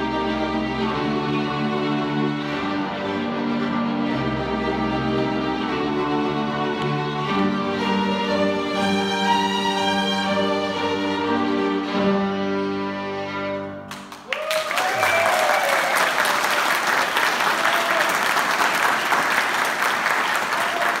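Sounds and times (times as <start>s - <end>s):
violin ensemble chord: 0.0s - 14.0s
audience applause: 13.9s - 21.0s.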